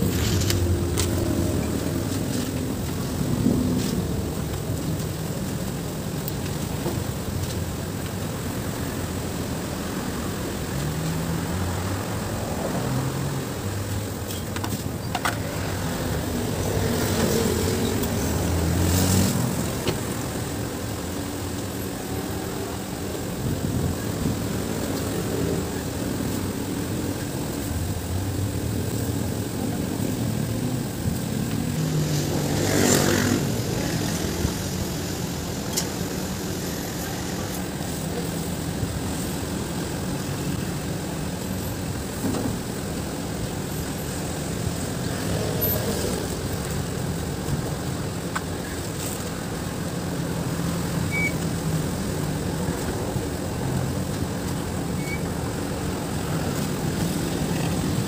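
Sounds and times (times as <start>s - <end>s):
vehicle engines running: 0.0s - 58.0s
vehicle passing close: 15.4s - 38.0s.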